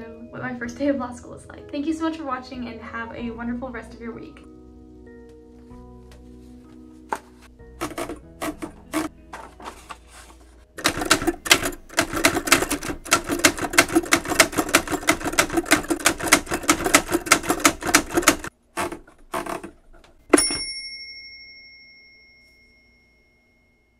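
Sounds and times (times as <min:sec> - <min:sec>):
typewriter keys clacking: 0:07.8 - 0:09.8, 0:10.8 - 0:19.7
typewriter strike with ringing: 0:20.3 - 0:21.7.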